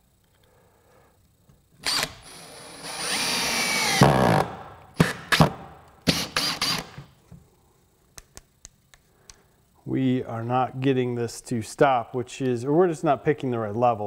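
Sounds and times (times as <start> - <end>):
drill driving screw into wood: 1.8 - 7.1.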